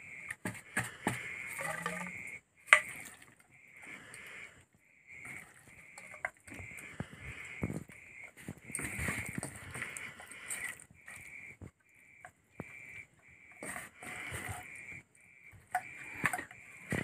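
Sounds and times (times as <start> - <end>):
wet squelching of hands in food: 5.2 - 11.7.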